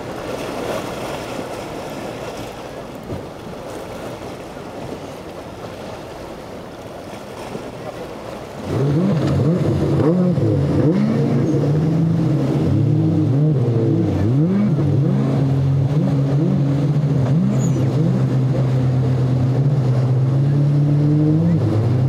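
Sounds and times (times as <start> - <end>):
outboard engines running hard: 0.0 - 22.0.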